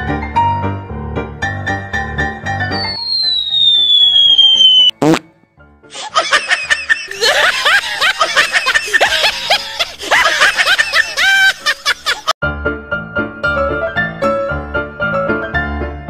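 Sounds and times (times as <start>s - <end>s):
music: 0.0s - 3.5s, 4.9s - 8.4s, 12.4s - 16.0s
falling whistle tone: 2.6s - 5.2s
quick rising sweep: 2.8s - 5.3s
high-pitched cartoonish laughter: 6.0s - 12.4s.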